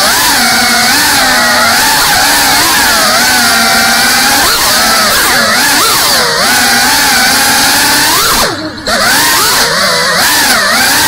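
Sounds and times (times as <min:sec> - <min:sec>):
drone motors whining: 0:00.0 - 0:11.0.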